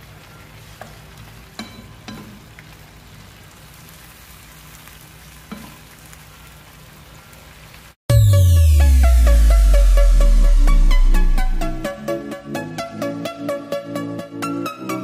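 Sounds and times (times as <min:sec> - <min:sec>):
fish sizzling in a wok: 0:00.0 - 0:08.0.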